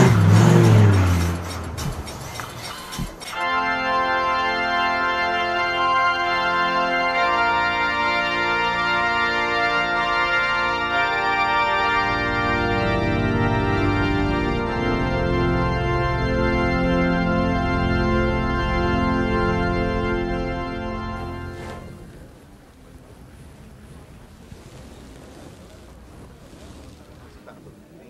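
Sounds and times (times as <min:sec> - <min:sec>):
organ playing slow chords: 0:03.3 - 0:22.3.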